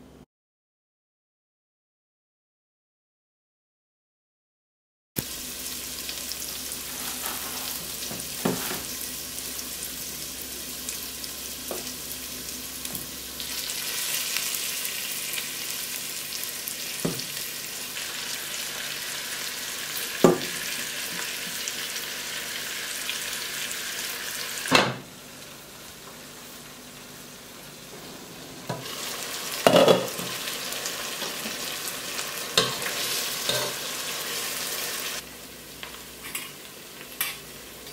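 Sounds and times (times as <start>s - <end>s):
food sizzling in a pot: 5.2s - 37.9s
spoon scraping a pot: 32.6s - 33.8s.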